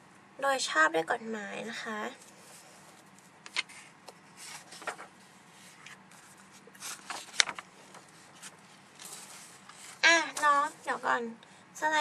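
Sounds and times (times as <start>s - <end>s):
paper crinkle: 2.2s - 11.0s
paper rustling: 2.2s - 11.0s.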